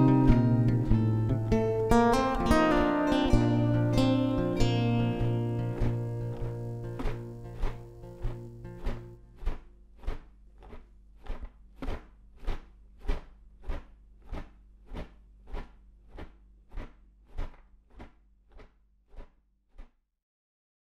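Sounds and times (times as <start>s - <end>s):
footsteps crunching on gravel: 5.8s - 10.8s.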